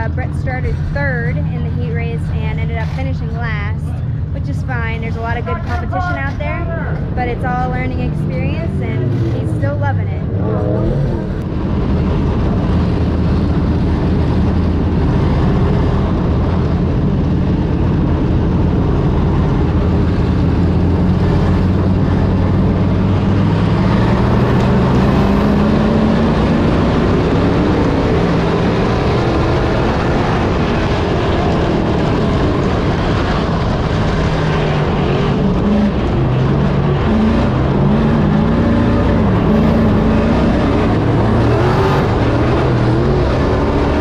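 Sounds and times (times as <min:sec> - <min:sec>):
race car engine: 0:00.0 - 0:44.0
steady noisy backdrop: 0:00.0 - 0:44.0.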